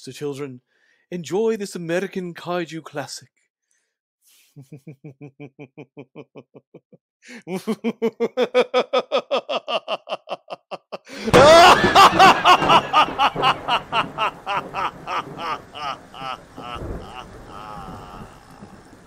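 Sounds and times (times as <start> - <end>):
horror laughter in quick pulses: 8.4 - 18.9.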